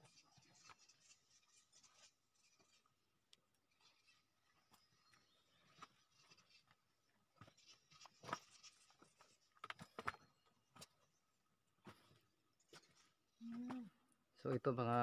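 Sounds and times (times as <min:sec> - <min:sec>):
scuffs and knocks on rocks: 0:07.4 - 0:11.0.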